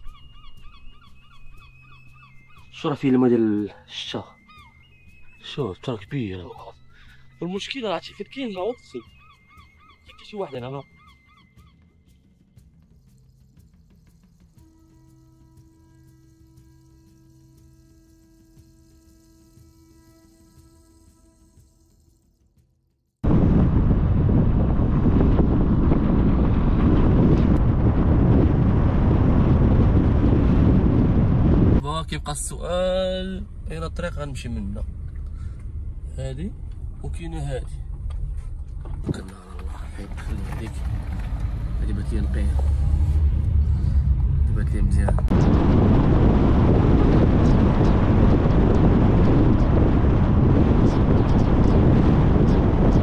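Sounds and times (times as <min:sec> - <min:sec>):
wind buffeting microphone: 0:23.2 - 0:31.9, 0:33.4 - 0:53.0.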